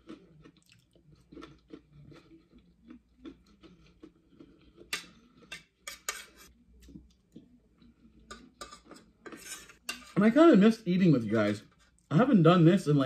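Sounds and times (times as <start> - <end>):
fork clinking against plate: 4.8 - 6.5, 8.2 - 10.2.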